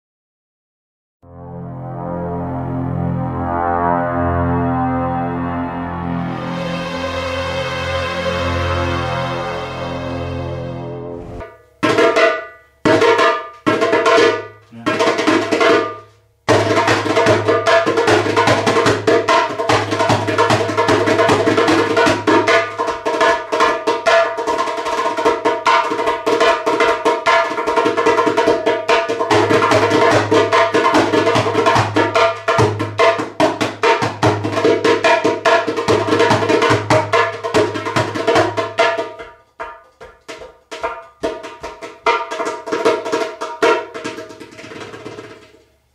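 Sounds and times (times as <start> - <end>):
hand drum: 11.4 - 45.7.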